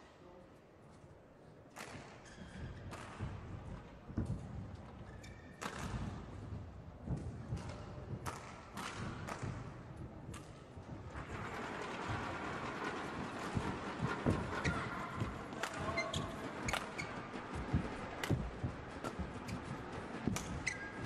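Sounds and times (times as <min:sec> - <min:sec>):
hall noise: 0:11.1 - 0:21.0.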